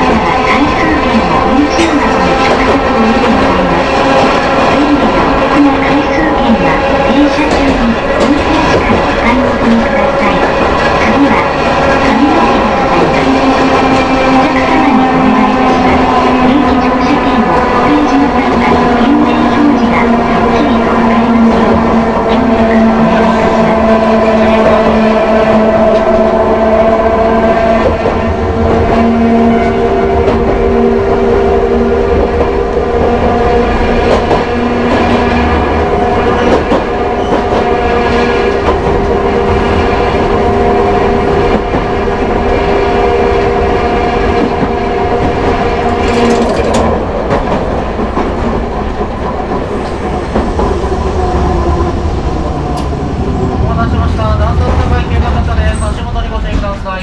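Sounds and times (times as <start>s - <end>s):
tram motor whine: 0.0s - 56.5s
wheels rumbling and clicking on rails: 0.0s - 57.0s.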